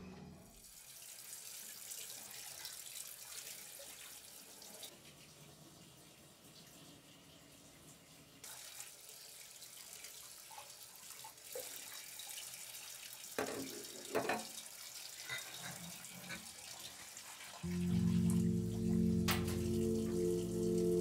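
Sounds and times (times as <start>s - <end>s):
faucet water running into sink: 0.5s - 21.0s
music with low held notes: 17.7s - 21.0s.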